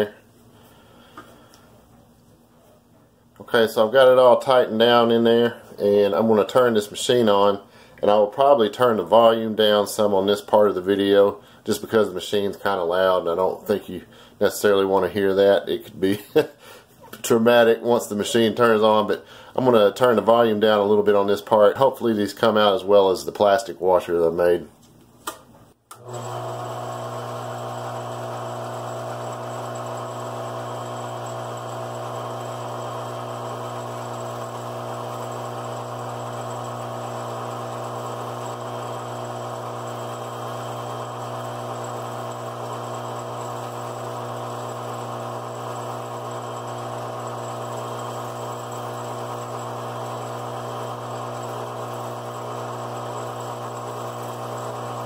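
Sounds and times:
lathe motor humming: 26.0s - 55.0s.

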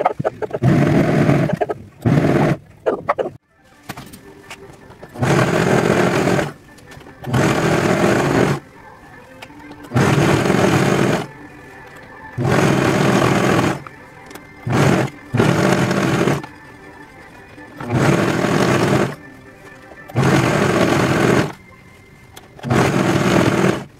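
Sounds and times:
overlock sewing machine running: 0.6s - 2.6s, 5.1s - 6.6s, 7.2s - 8.6s, 9.8s - 11.3s, 12.4s - 13.9s, 14.6s - 17.0s, 17.8s - 19.3s, 20.0s - 21.6s, 22.6s - 23.9s.

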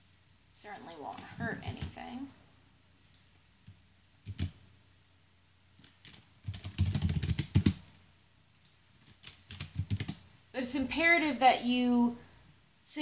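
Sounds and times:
computer keyboard typing: 1.1s - 2.1s, 4.2s - 4.6s, 5.8s - 7.9s, 8.6s - 10.2s.

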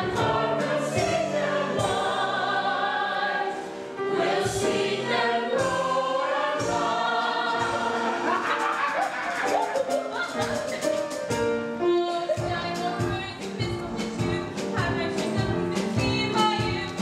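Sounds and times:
chorus singing: 0.0s - 11.2s.

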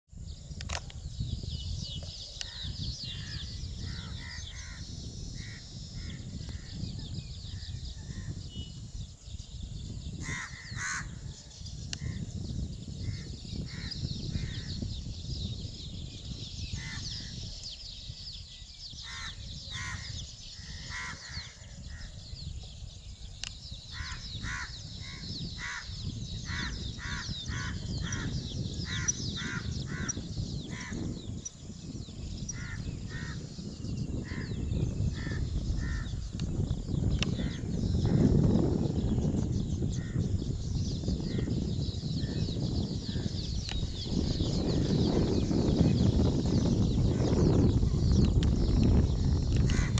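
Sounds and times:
birds calling: 0.4s - 49.9s.

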